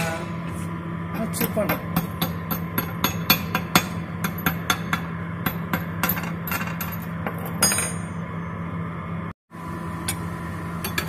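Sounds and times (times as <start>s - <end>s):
steady low hum: 0.0s - 11.0s
chipping hammer tapping metal: 1.6s - 7.0s.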